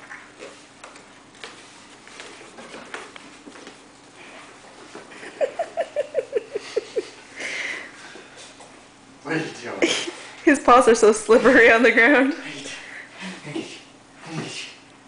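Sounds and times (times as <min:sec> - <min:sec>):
puppy claws pattering on wood floor: 0:00.4 - 0:05.1.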